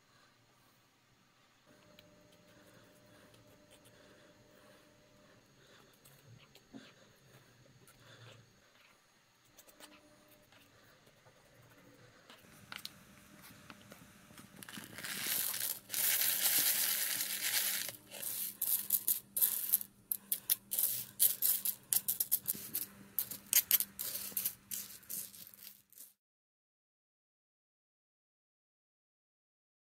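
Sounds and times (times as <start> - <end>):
coffee beans pouring: 14.4 - 26.2
beans clicking under stirring stick: 14.6 - 26.1.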